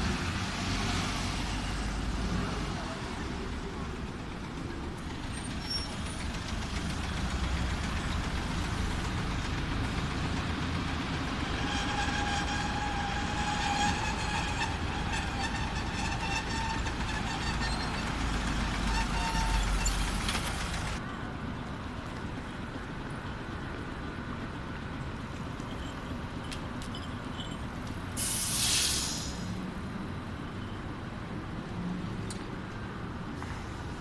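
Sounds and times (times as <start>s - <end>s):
road traffic: 0.0s - 34.0s
tram whine: 1.2s - 21.0s.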